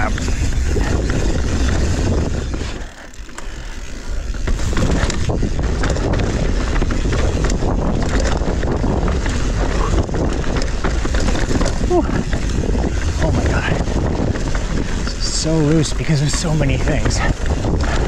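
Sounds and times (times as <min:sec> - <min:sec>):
bike clattering and rattling: 0:00.0 - 0:18.0
bike tyres rumbling on trail: 0:00.0 - 0:18.0
wind buffeting microphone: 0:00.0 - 0:18.0.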